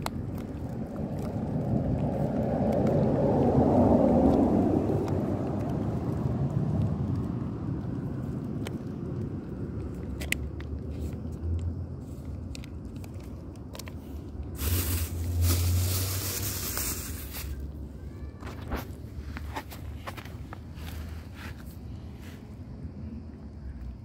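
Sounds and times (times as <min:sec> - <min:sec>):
cat chewing and licking food: 0:00.0 - 0:18.0
steady low rumble: 0:00.0 - 0:24.0.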